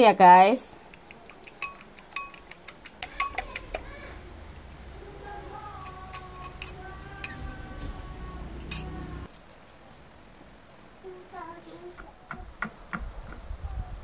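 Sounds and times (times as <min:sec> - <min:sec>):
fork clicking against glass bowl: 0:00.9 - 0:03.8, 0:05.8 - 0:07.5
fork and glass clinks: 0:01.6 - 0:02.4, 0:05.8 - 0:07.6, 0:08.6 - 0:09.0
faint voice: 0:03.0 - 0:09.3.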